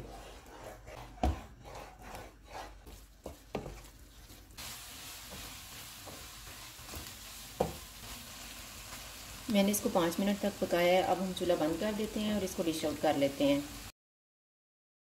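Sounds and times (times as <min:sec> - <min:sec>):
spatula scraping a pan: 0:00.0 - 0:08.0
eggs sizzling: 0:02.2 - 0:13.9
spatula knocking on pan: 0:05.3 - 0:07.9.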